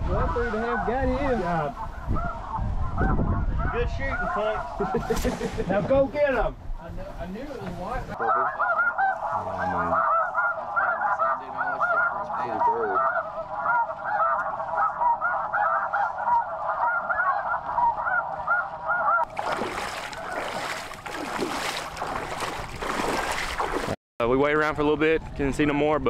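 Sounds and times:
geese honking: 0.0s - 5.2s, 8.1s - 23.8s
wind noise: 0.0s - 8.2s, 17.7s - 26.0s
wading through shallow water: 18.6s - 24.0s.

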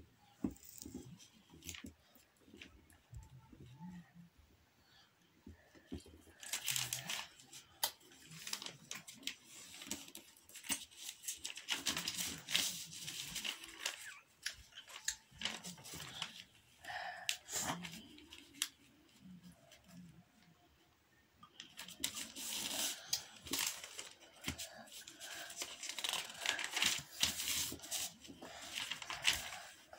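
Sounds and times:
paper rustling and crinkling: 5.8s - 20.0s, 21.6s - 29.9s.

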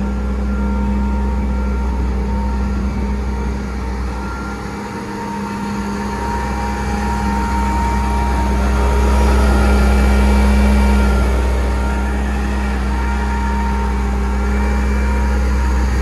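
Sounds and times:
forklift engine idling: 0.0s - 16.0s.

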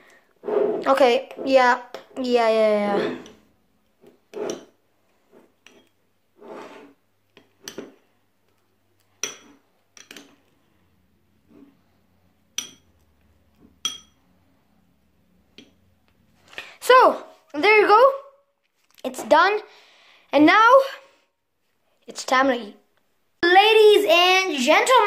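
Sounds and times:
metal spoon scraping glass bowl: 4.3s - 4.7s, 5.6s - 7.0s
spoon clinking against glass: 13.8s - 14.2s.

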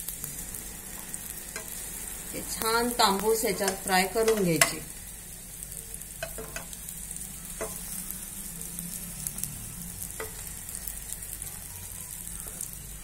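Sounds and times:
bread sizzling in hot fat: 0.0s - 13.0s
spoon clicking against pan: 3.7s - 4.8s, 6.2s - 6.8s.

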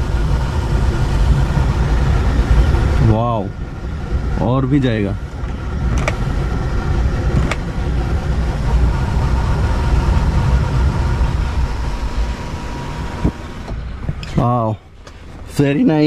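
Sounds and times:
faint steady whine: 0.0s - 16.0s
steady low rumble: 0.0s - 16.0s
sunroof sliding open: 5.5s - 6.3s, 7.3s - 7.7s.

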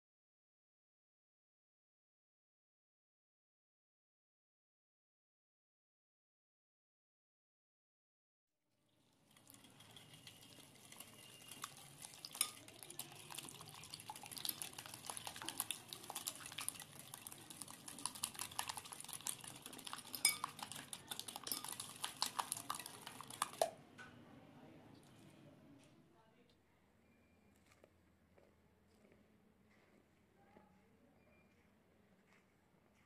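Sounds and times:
whisk clinks: 9.5s - 23.7s
whisk clicking against glass bowl: 9.5s - 23.8s.

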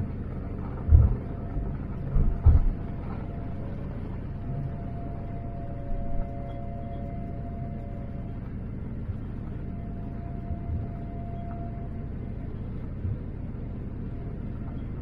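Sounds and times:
thin engine whine: 0.0s - 13.2s
engine and rolling gear rumble: 0.0s - 15.0s
low thumps: 0.8s - 1.3s, 2.1s - 3.2s.

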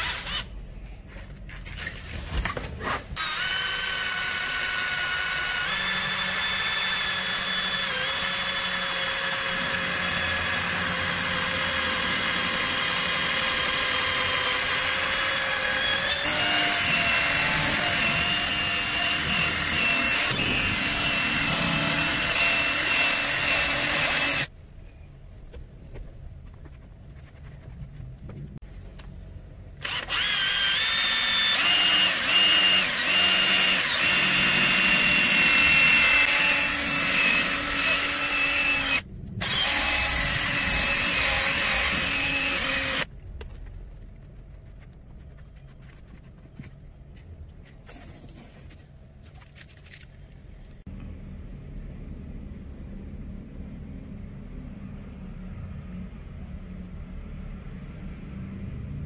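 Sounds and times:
electric drill with polishing pad: 3.2s - 24.5s, 29.8s - 43.1s.

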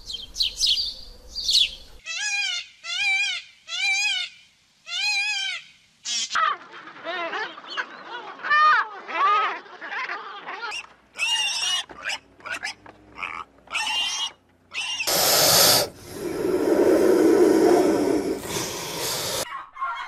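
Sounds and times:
snake hissing: 15.0s - 19.5s.

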